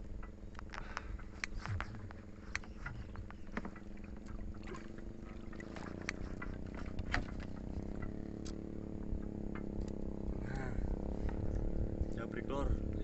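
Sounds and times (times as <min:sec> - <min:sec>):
boat motor running: 0:00.0 - 0:13.0
sharp clicks: 0:00.5 - 0:03.8
water splashes: 0:01.7 - 0:08.0.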